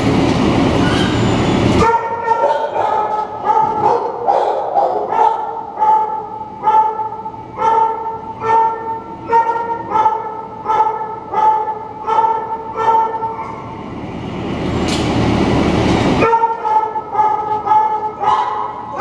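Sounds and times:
dog barking: 0:01.8 - 0:13.7, 0:16.2 - 0:19.0.

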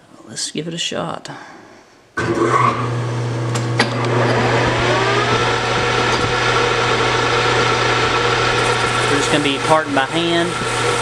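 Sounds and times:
lathe spindle whine: 0:02.2 - 0:11.0
lathe motor hum: 0:02.3 - 0:11.0.

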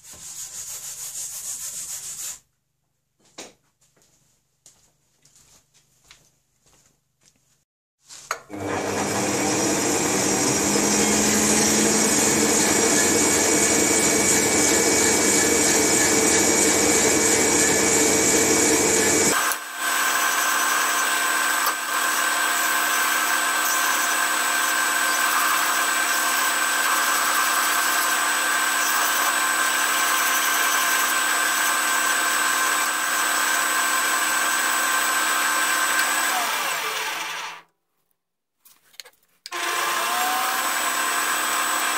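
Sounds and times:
metal lathe gear whine: 0:08.6 - 0:21.7, 0:22.8 - 0:32.0.

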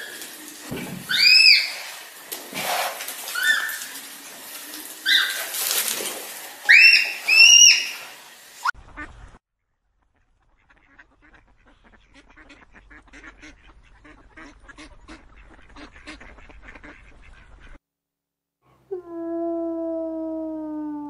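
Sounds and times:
ducks quacking: 0:08.7 - 0:09.2, 0:10.0 - 0:17.8.

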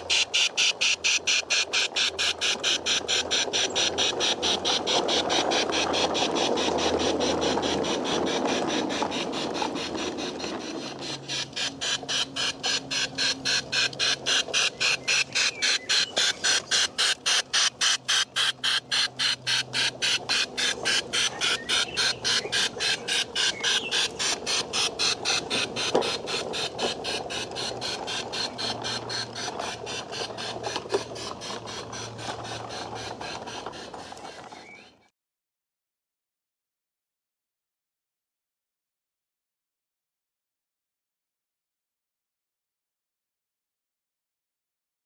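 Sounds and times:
model locomotive chuffing: 0:00.0 - 0:35.1
wheels clicking: 0:00.0 - 0:35.1.

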